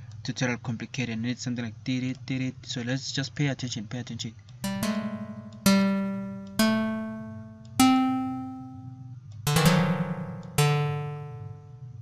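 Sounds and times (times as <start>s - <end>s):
synth plucked-string notes: 4.6s - 12.0s.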